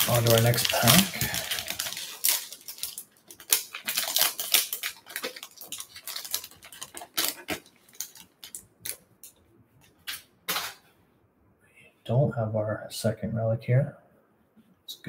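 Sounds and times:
plastic wrapper tearing and crinkling: 0.0s - 9.4s.

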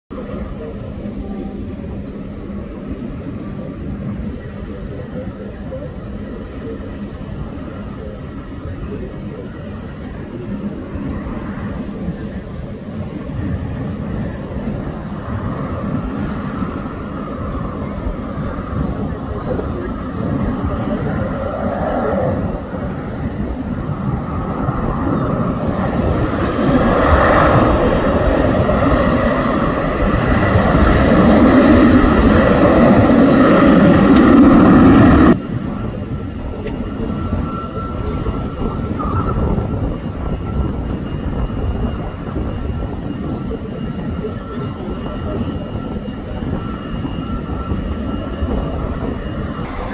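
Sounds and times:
jet engines rumbling: 0.1s - 49.9s
faint high whine: 43.6s - 49.9s.

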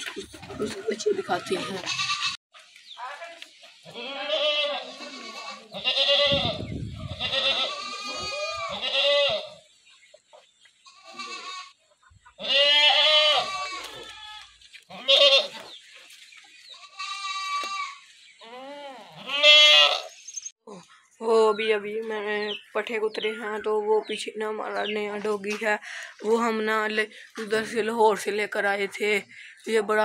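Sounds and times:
goats bleating: 0.6s - 2.4s, 3.9s - 9.6s, 10.8s - 11.8s, 12.4s - 15.7s, 16.8s - 20.1s.

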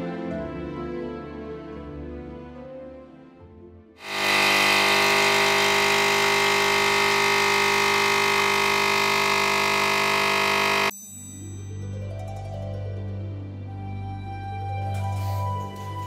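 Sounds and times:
espresso machine pump humming: 4.0s - 10.9s.

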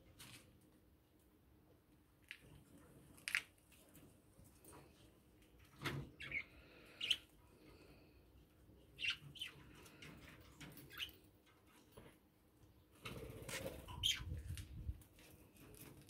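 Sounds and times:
budgerigars chirping: 6.2s - 7.3s, 9.0s - 9.6s.

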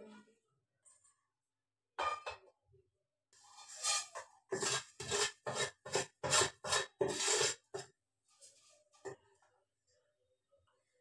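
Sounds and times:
wooden spatula scraping a pan: 3.4s - 9.3s.

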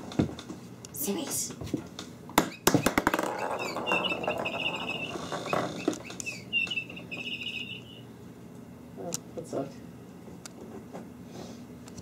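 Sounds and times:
high warbling chirp: 3.3s - 8.1s.

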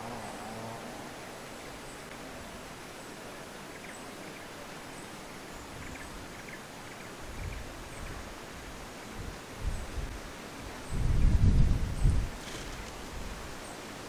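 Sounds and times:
steady background hiss: 0.0s - 14.0s
wind buffeting microphone: 10.9s - 13.5s.

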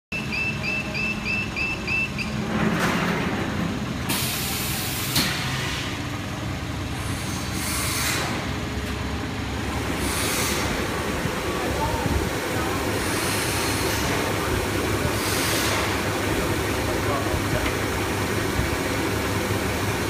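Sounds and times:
rapid electronic beeping: 0.1s - 2.4s
steady machine hum: 0.1s - 20.0s
compressed air hisses: 9.8s - 10.9s.

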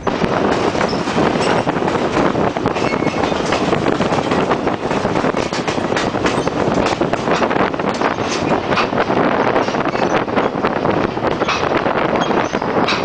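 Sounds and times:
train wheels rumbling on rail: 0.0s - 13.0s
clicks and rattles: 0.5s - 9.0s.

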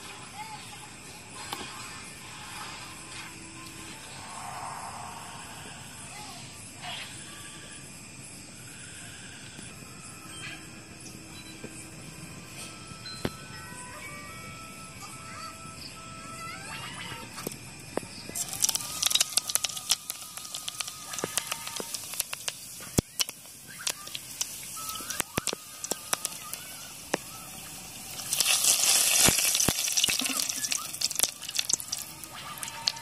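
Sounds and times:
loud sizzle in oil: 18.4s - 33.0s
seeds spluttering in hot oil: 18.4s - 33.0s.

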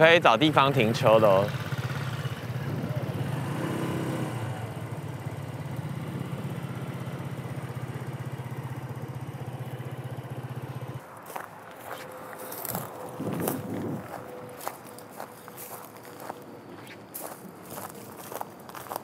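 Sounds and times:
motor scooter engine running: 0.3s - 11.0s
footsteps on dry ground: 11.0s - 19.0s.

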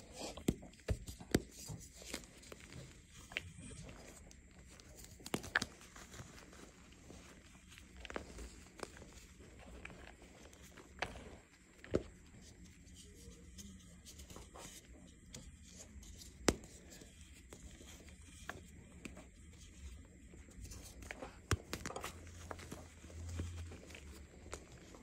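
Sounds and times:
hands crunching dry chalk: 0.0s - 25.0s
chalk pieces snapping: 3.2s - 6.4s.

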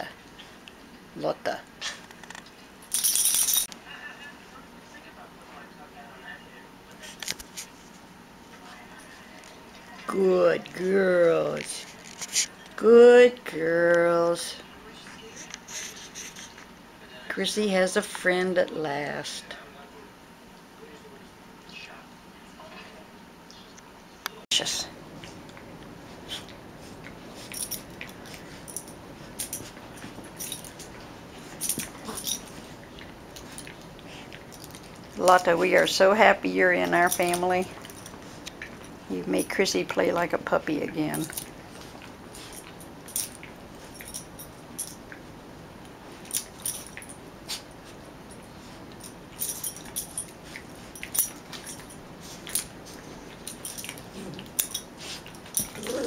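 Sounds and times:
light clicks and jingles: 2.8s - 3.7s, 27.3s - 40.0s, 40.8s - 45.2s, 46.1s - 56.0s
dogs play-wrestling: 25.1s - 36.2s, 36.8s - 39.1s, 41.1s - 56.0s
dogs scuffling on a rug: 45.8s - 56.0s.

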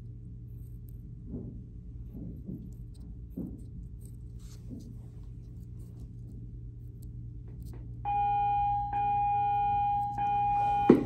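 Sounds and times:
tool scratching clay: 2.0s - 7.8s
loud steady electronic tone: 8.0s - 11.0s.

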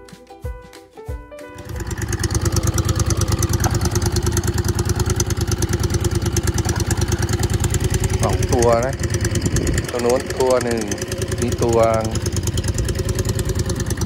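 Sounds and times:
music: 0.0s - 2.8s
boat engine chugging: 1.6s - 14.0s.

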